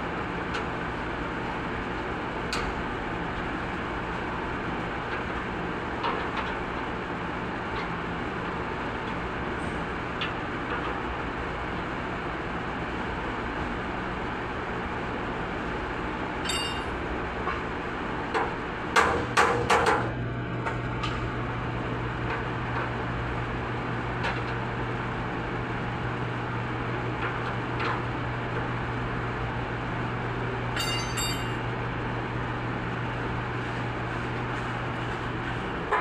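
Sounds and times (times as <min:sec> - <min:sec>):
low workshop hum: 0:00.0 - 0:36.0
metal tools knocking and clinking: 0:16.4 - 0:16.9, 0:30.8 - 0:31.6.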